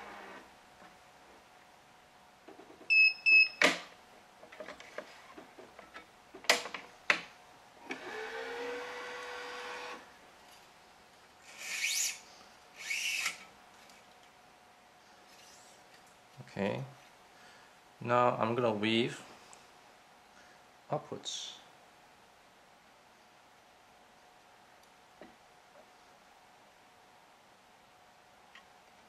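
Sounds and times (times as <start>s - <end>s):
short beeps: 2.9s - 3.6s.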